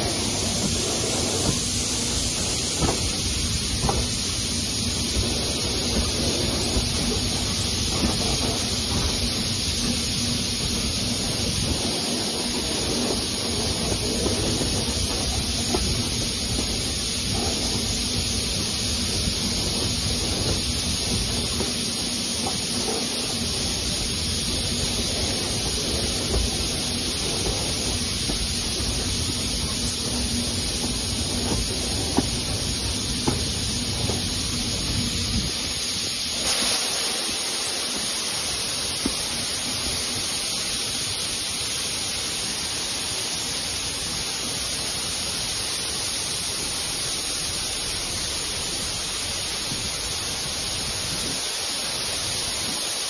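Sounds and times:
wheels on rails: 0.0s - 41.2s
rush of wind: 0.0s - 53.0s.

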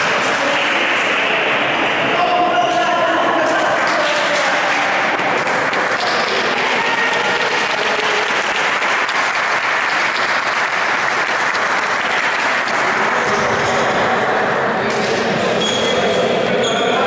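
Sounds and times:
voices: 0.0s - 17.0s
spectators applauding: 3.5s - 13.8s.

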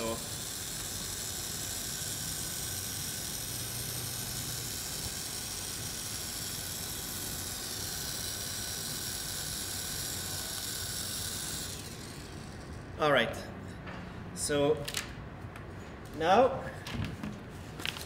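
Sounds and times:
printing pen whirring: 0.0s - 12.9s.

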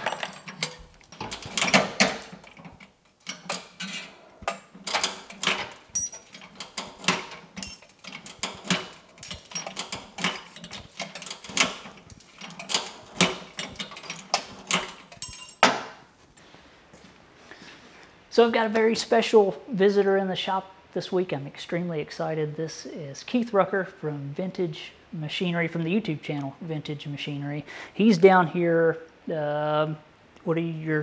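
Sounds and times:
metal shear clicks and clunks: 0.0s - 15.8s.

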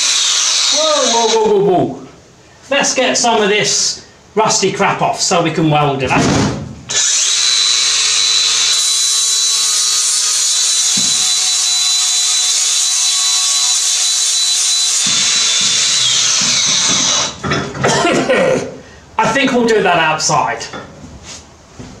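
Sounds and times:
angle grinder grinding steel: 0.0s - 1.4s, 6.9s - 17.4s.

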